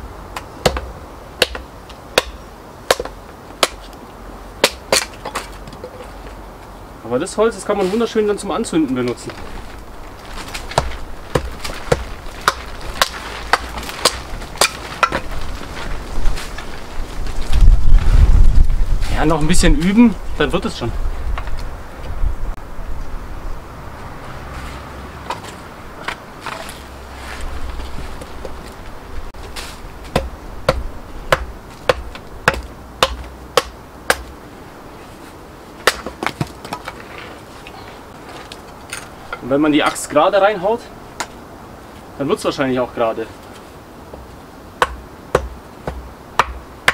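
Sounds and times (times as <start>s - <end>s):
axe chopping kindling: 0.4s - 3.9s, 4.6s - 5.8s, 10.2s - 15.7s, 29.6s - 34.4s, 35.8s - 37.0s, 44.8s - 46.9s.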